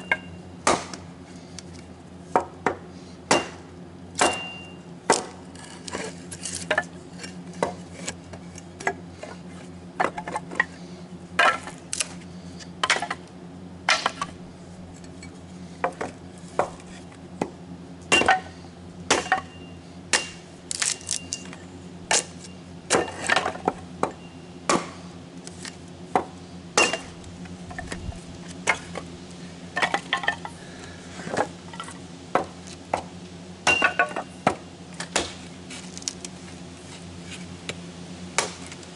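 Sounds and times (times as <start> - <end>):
axe chopping wood: 0.6 - 1.0, 2.3 - 5.4, 12.8 - 13.2, 13.8 - 14.4, 17.4 - 18.5, 19.1 - 19.5, 20.1 - 21.0, 22.1 - 25.0, 26.1 - 27.2, 32.3 - 35.4, 38.4 - 38.8.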